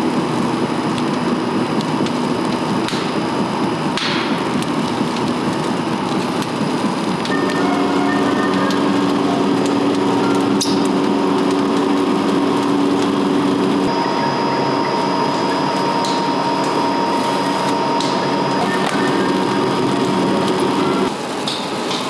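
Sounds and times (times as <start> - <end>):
rubber mill machine hum: 0.0 - 22.0.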